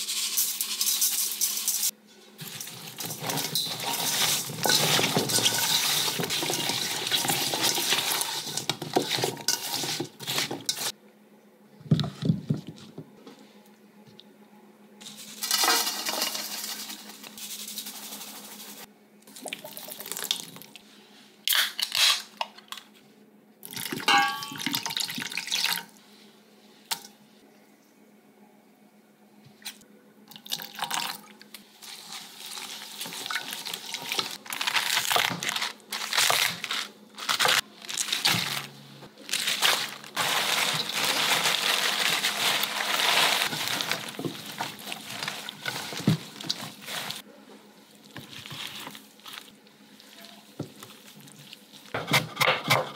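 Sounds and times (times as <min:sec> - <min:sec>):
chili powder shaken into bowl: 0:15.0 - 0:18.9
wet squishing and rustling: 0:31.5 - 0:52.0.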